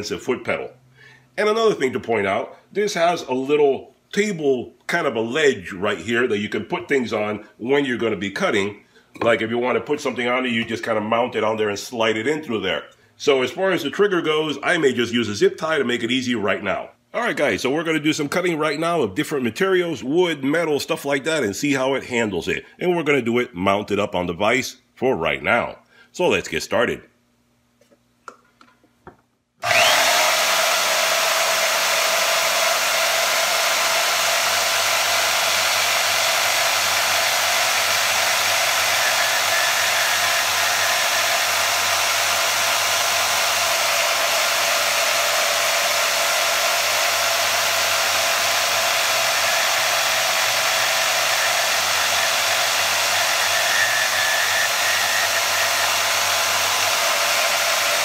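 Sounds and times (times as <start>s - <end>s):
band saw motor whining: 29.6s - 58.0s.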